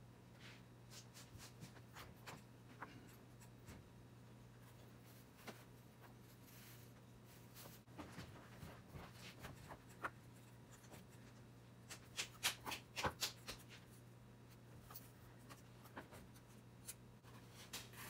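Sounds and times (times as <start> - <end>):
faint steady hum: 0.0 - 18.0
sharp taps and scrapes: 9.2 - 14.0.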